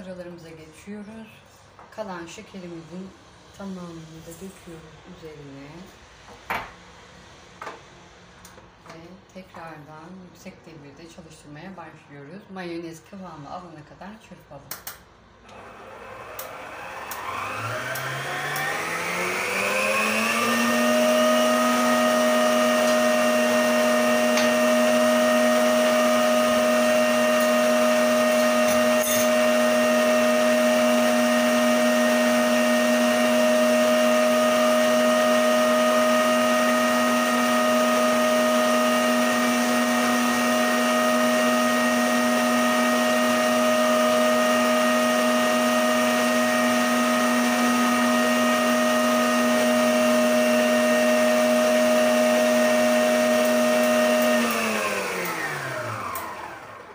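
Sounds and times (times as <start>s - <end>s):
stand mixer motor whine: 15.5s - 56.9s.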